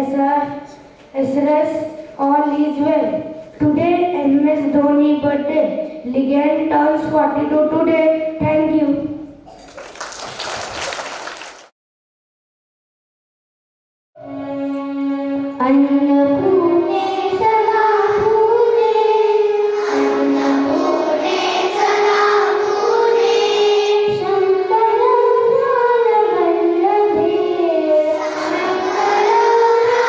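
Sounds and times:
girls chanting into microphones: 0:16.9 - 0:25.0, 0:27.2 - 0:30.0.

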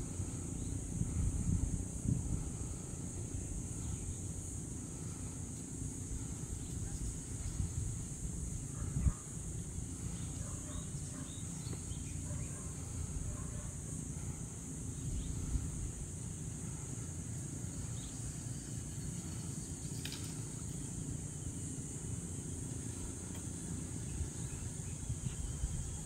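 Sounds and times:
low rumbling noise: 0:00.0 - 0:18.2
insect chorus: 0:00.0 - 0:26.0.

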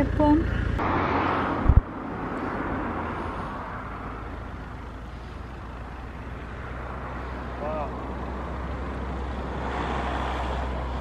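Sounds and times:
low rumble: 0:00.4 - 0:04.2
rush of noise with low thump: 0:00.8 - 0:02.9.

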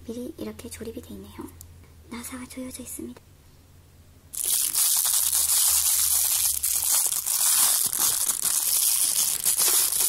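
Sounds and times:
plastic bag crinkling: 0:04.4 - 0:10.0.

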